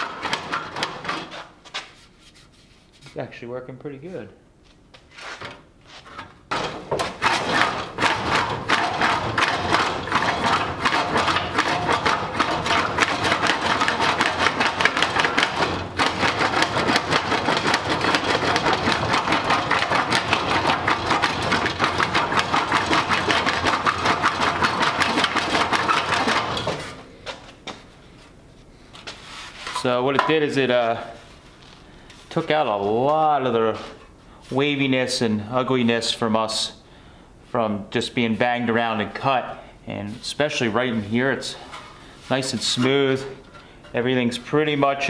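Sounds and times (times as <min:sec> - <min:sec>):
rapid metal rattle: 0:00.0 - 0:01.4, 0:06.5 - 0:27.0.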